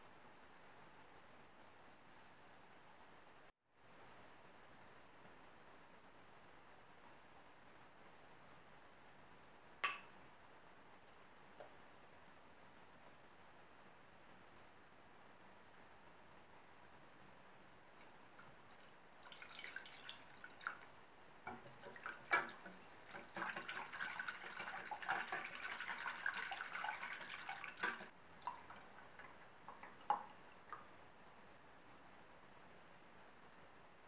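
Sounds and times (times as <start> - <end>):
milk dripping: 18.0 - 30.9
milk pouring and splashing: 18.0 - 30.9.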